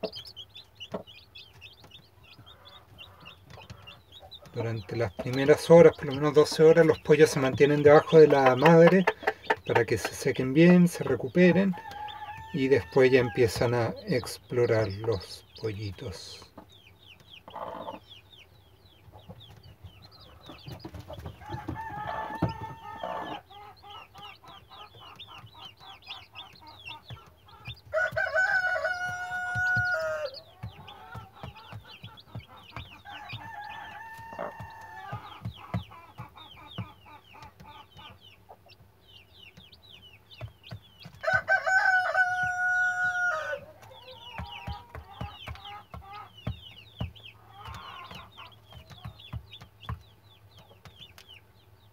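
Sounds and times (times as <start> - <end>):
chicks peeping: 0.0 - 51.9
rooster crowing: 11.8 - 13.4, 21.5 - 23.4, 27.9 - 30.4, 41.2 - 44.4
hen pecking at corn: 20.0 - 38.9, 40.4 - 51.2.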